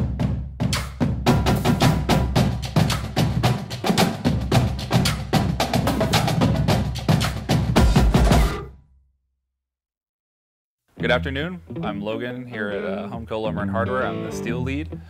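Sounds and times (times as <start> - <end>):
wood block percussion: 0.2 - 8.6.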